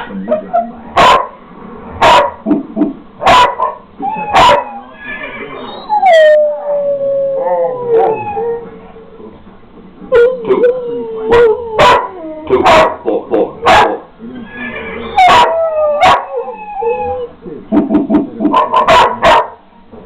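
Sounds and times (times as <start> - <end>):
dog howling: 4.0 - 8.7, 10.1 - 12.9, 15.0 - 17.3.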